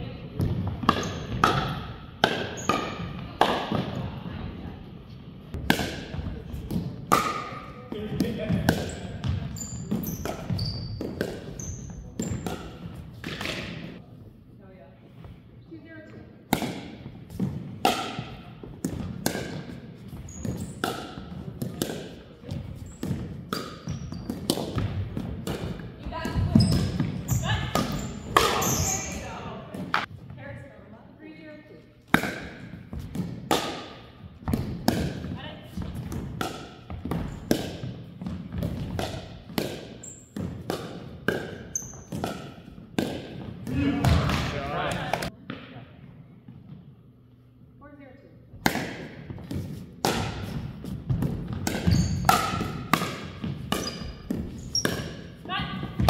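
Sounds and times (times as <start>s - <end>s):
ball bouncing on hardwood court: 0.3s - 4.2s, 5.5s - 14.0s, 16.5s - 30.7s, 32.1s - 46.9s, 48.6s - 56.0s.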